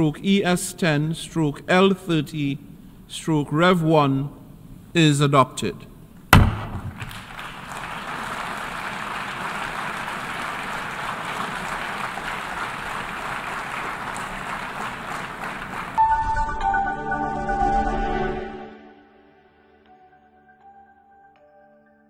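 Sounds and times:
crowd applauding: 0:06.9 - 0:16.0
music: 0:16.0 - 0:22.0.

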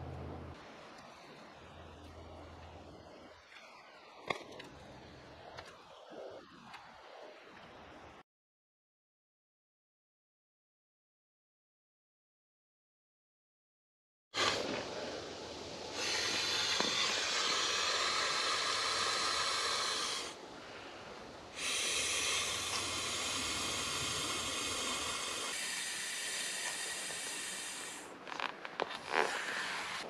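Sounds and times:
air hissing into inflatable pad: 0:14.4 - 0:20.4, 0:21.5 - 0:30.0.

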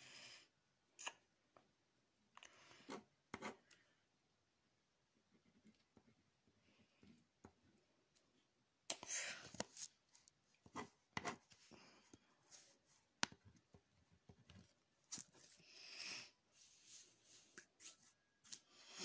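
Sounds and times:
pen scratching on paper: 0:10.7 - 0:11.5.

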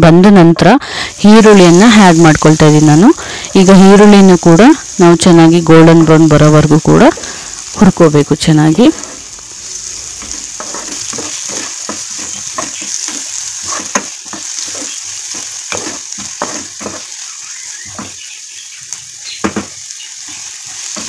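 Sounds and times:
onions sizzling in hot oil: 0:00.4 - 0:21.0
wooden spatula scraping pan: 0:08.9 - 0:18.2.

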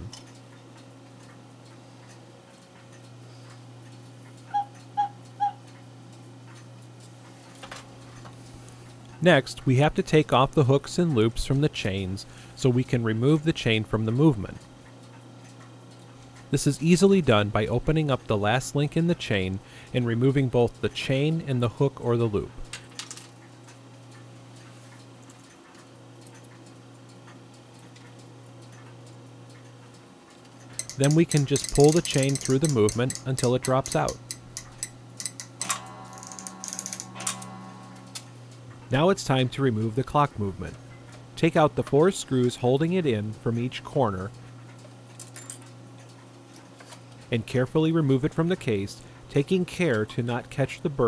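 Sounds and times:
steady low hum: 0:00.0 - 0:51.0
faint clock ticking: 0:00.2 - 0:07.4, 0:23.5 - 0:35.7
cuckoo clock toots: 0:04.4 - 0:05.8.

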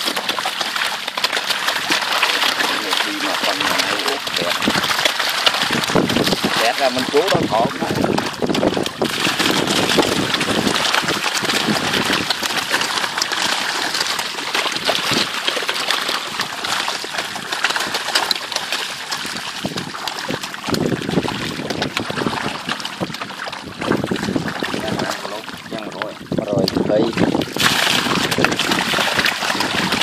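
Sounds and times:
fish thrashing and splashing water: 0:00.0 - 0:30.0.

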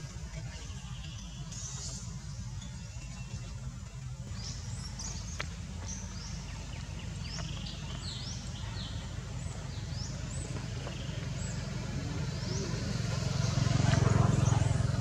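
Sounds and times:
birds chirping: 0:00.0 - 0:15.0.

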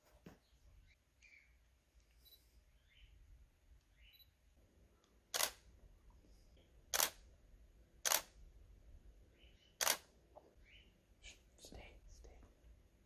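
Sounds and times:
camera shutter clicks: 0:05.3 - 0:05.6, 0:06.9 - 0:07.2, 0:08.0 - 0:08.3, 0:09.8 - 0:10.1.

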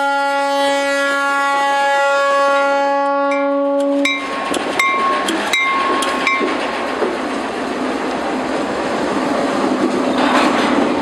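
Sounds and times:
locomotive air horn blast: 0:00.0 - 0:04.2
train clanking metallically: 0:02.5 - 0:11.0.

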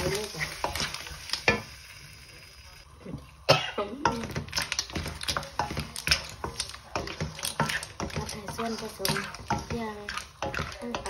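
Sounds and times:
spatula scraping a wok: 0:00.0 - 0:02.0, 0:04.3 - 0:11.0.

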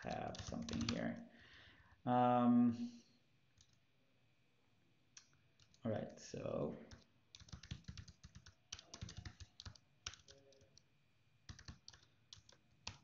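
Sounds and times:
faint typing on keyboard: 0:00.0 - 0:01.2, 0:03.5 - 0:03.8, 0:05.1 - 0:06.2, 0:06.8 - 0:13.0.

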